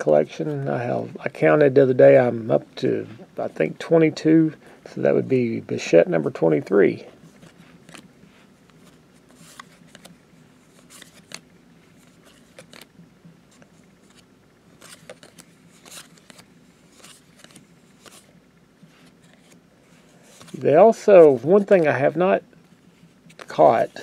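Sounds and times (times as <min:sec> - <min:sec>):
cards being flipped through: 0:07.2 - 0:22.2, 0:23.0 - 0:24.0.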